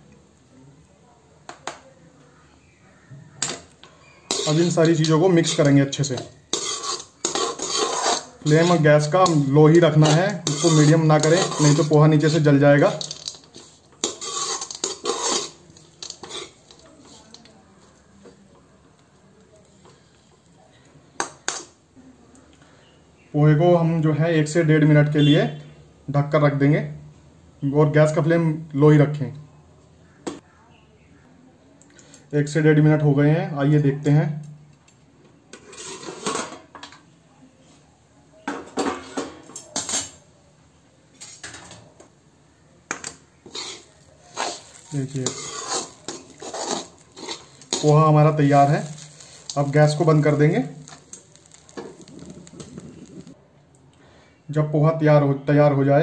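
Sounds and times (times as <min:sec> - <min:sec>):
metal spatula scraping a metal pan: 0:04.0 - 0:17.4, 0:35.5 - 0:36.6, 0:43.1 - 0:53.4.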